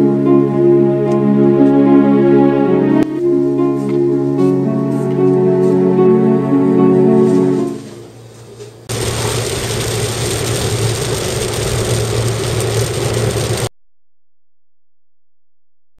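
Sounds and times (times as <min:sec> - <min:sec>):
road and tyre noise: 0:08.6 - 0:13.7.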